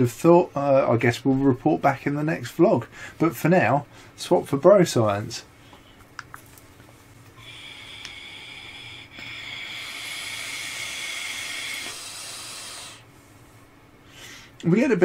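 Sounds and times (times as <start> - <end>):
electronic cigarette hiss: 7.4 - 13.1.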